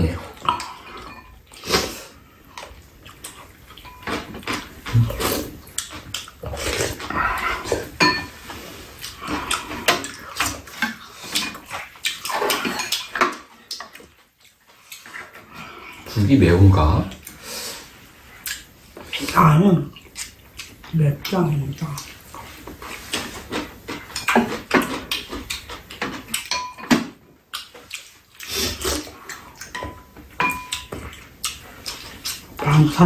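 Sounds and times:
chewing and slurping: 0.2 - 16.2, 17.1 - 33.0
utensils knocking against bowls: 7.0 - 8.4, 23.5 - 27.2, 29.7 - 31.1.

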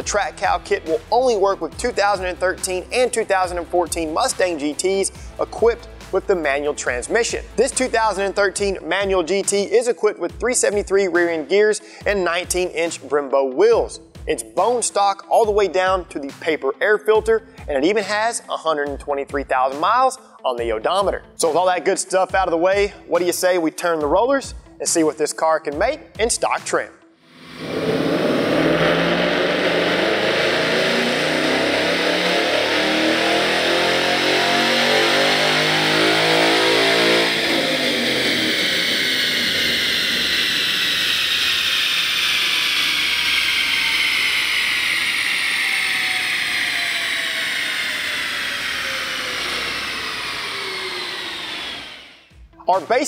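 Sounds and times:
car engine revving: 0.0 - 8.8, 27.3 - 52.4
drivetrain coasting whine: 27.3 - 52.6.

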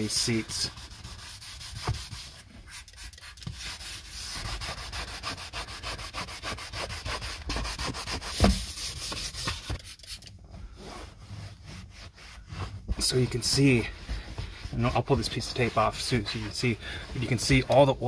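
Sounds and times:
brush scrubbing leather seat: 0.0 - 18.0
towel wiping seat: 0.0 - 18.0
thump: 8.4 - 8.6.

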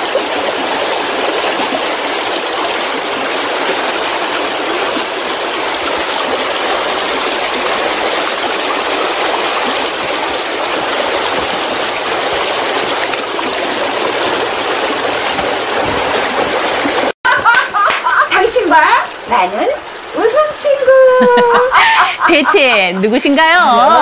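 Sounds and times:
waterfall rushing: 0.0 - 17.2.

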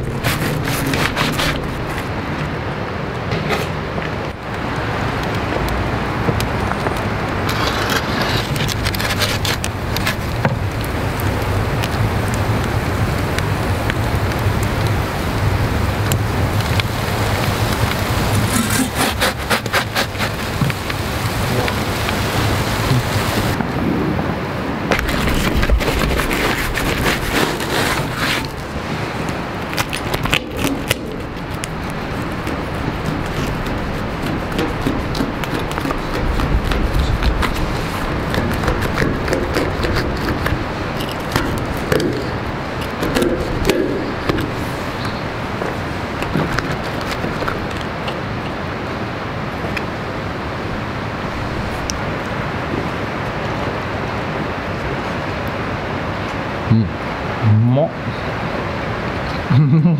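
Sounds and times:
crust crunching and scraping: 0.0 - 2.7, 3.3 - 12.4, 16.1 - 22.3, 24.9 - 48.7
burning logs crackling and popping: 0.0 - 55.6
low roar of flames: 0.0 - 59.6
rushing background noise: 0.0 - 59.9
knife cutting through pizza: 0.1 - 2.0, 18.4 - 20.4.

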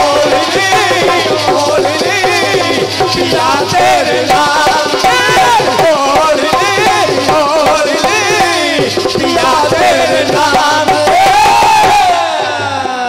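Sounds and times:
hand drum drumming: 0.0 - 13.0
jingling percussion: 0.0 - 13.0.

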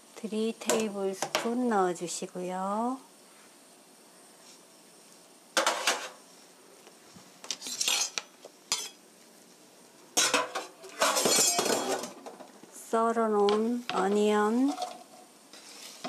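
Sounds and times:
kitchenware clattering against pan: 5.6 - 6.2, 10.2 - 12.3.

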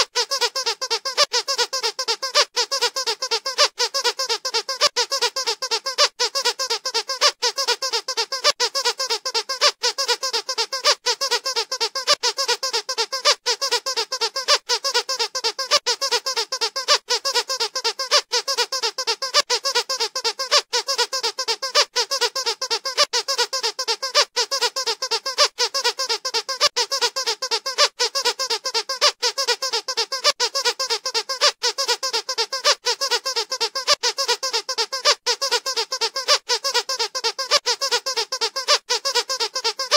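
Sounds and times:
dog toy squeaking: 0.0 - 39.9.

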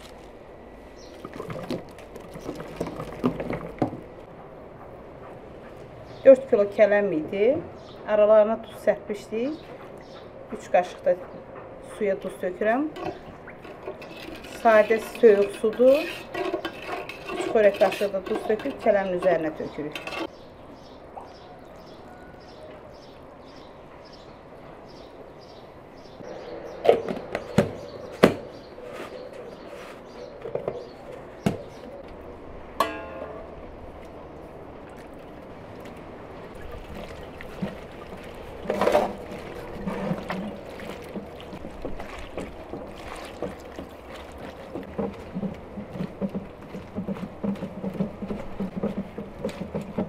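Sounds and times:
metal pot and dish clanking: 12.9 - 20.3, 32.8 - 33.7
wet squelching of mashed tomatoes: 34.8 - 50.0.

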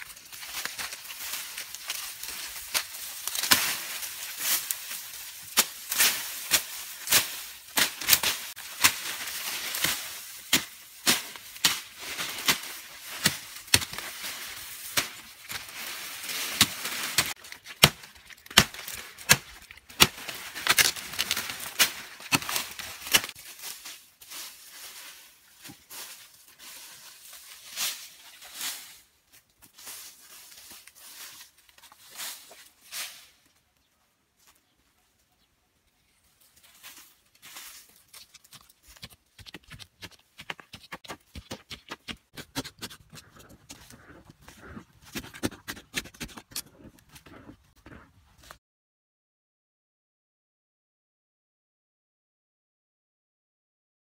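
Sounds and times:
bush knife chopping brush: 0.6 - 23.4, 38.1 - 48.6.

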